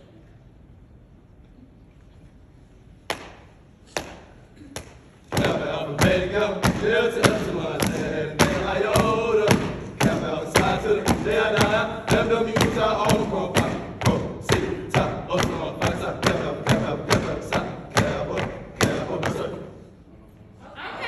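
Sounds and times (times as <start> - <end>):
hands clapping: 3.0 - 5.6
stomps on wooden stage: 3.1 - 19.6
voices chanting: 5.3 - 20.0.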